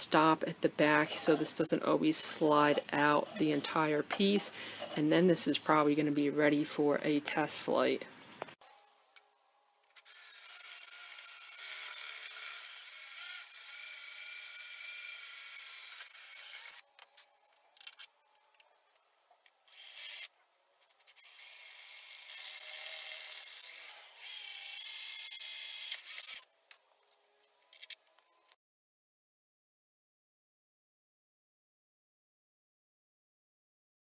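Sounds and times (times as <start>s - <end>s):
power drill whining: 21.1s - 26.4s.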